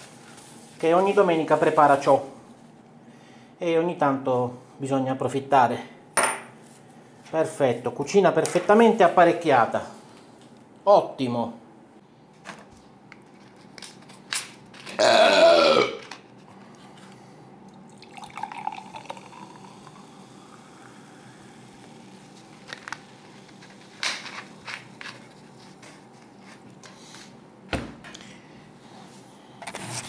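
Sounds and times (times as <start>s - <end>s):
drink pouring into glass: 17.7s - 21.2s
faint fizz: 17.7s - 22.2s.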